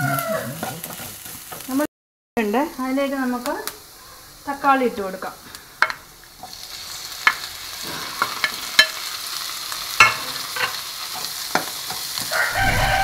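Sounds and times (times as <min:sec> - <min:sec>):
tomatoes sizzling in hot oil: 0:00.0 - 0:13.0
spatula tapping and scraping pan: 0:00.6 - 0:01.7, 0:10.0 - 0:12.3.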